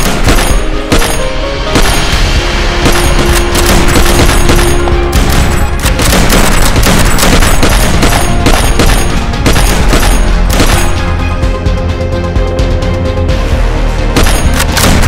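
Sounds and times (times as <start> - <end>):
rapid gunfire: 0.0 - 11.1, 14.2 - 15.0
loud action music: 0.0 - 15.0.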